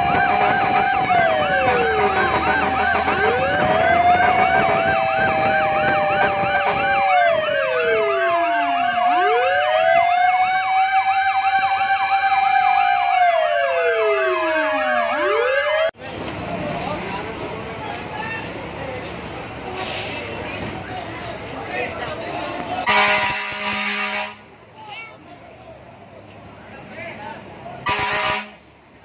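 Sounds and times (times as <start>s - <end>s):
fast yelping siren: 0.0s - 15.9s
wailing sirens: 0.0s - 16.0s.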